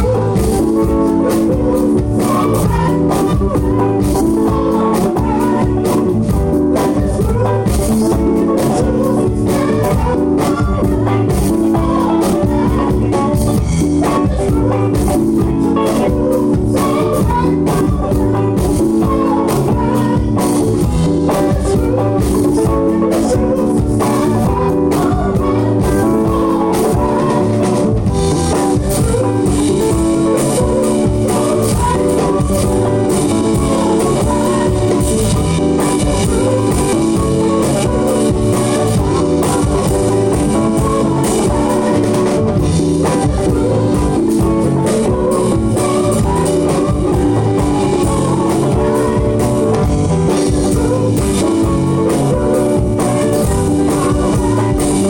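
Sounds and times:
drum kit: 0.0s - 55.0s
electric guitar: 0.0s - 55.0s
synth keyboards: 0.0s - 55.0s.

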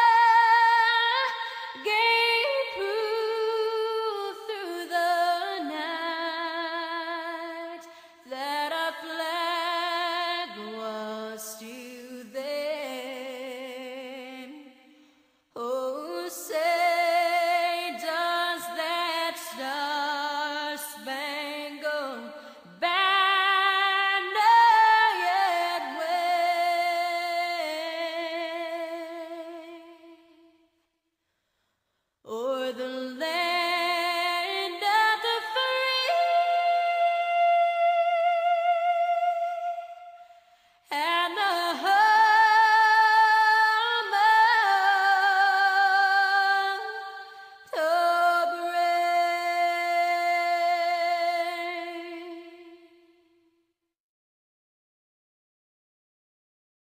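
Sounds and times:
woman singing wordless held notes: 22.8s - 29.4s, 40.9s - 52.5s.

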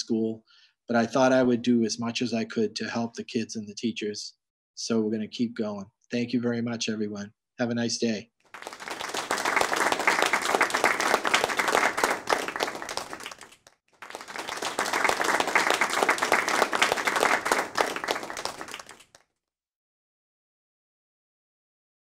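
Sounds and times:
crowd applause: 8.5s - 19.2s.

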